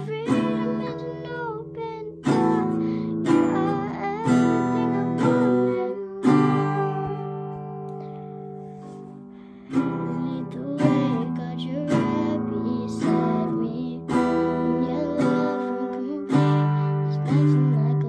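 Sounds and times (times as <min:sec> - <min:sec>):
girl singing: 0:00.0 - 0:08.2, 0:08.8 - 0:18.0
acoustic guitar strumming: 0:00.0 - 0:18.0.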